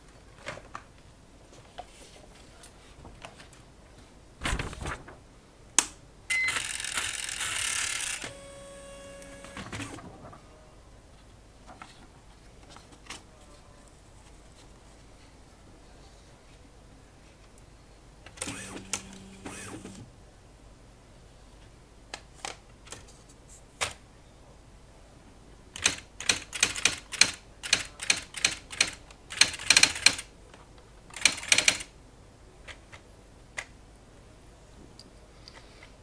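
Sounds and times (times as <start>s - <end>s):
typewriter motor whir: 6.3s - 10.0s, 18.4s - 20.1s
typewriter carriage steps: 9.2s - 10.3s, 18.4s - 20.0s, 31.1s - 31.9s
typewriter clicks: 25.8s - 30.3s, 31.1s - 31.9s.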